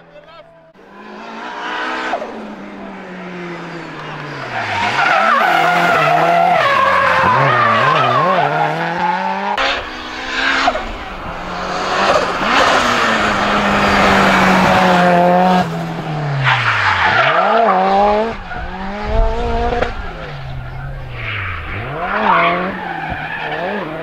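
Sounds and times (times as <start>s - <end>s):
race car engine revving: 0.7s - 24.0s
tyre squeal: 19.9s - 24.0s.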